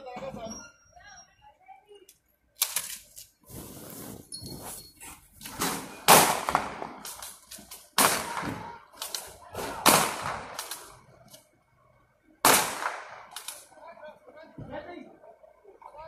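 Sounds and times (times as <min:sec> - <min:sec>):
loud sharp bangs: 0:05.6 - 0:07.2, 0:07.9 - 0:09.0, 0:09.6 - 0:11.0, 0:12.4 - 0:13.5.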